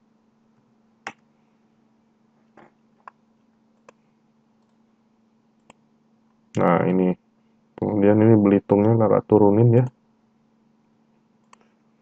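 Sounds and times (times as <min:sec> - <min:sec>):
faint low hum: 0:00.0 - 0:12.0
computer mouse clicks: 0:05.6 - 0:05.8, 0:11.4 - 0:11.7.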